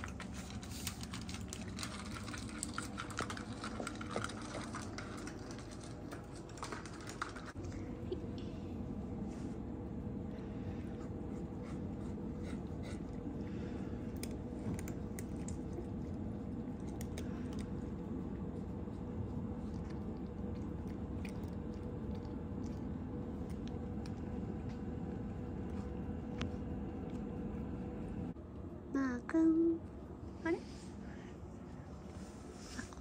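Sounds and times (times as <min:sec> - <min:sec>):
cat crunching dry food: 0:00.0 - 0:07.7, 0:14.0 - 0:25.2
low background hum: 0:00.0 - 0:33.0.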